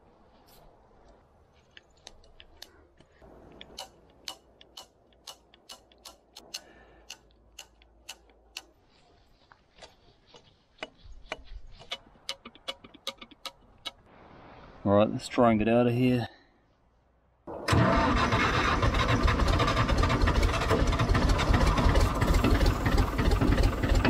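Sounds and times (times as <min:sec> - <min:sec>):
grease gun clicking: 0:01.7 - 0:08.8, 0:10.8 - 0:14.0.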